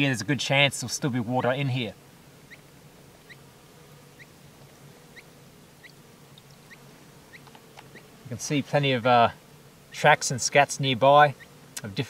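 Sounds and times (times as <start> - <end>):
faint steady hum: 0.0 - 12.0
small bird chirping: 2.4 - 3.5, 4.1 - 8.2, 11.3 - 11.6.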